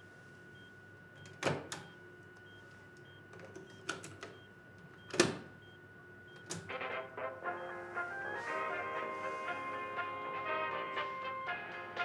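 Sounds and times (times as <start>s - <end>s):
faint electronic tone: 5.6s - 9.7s.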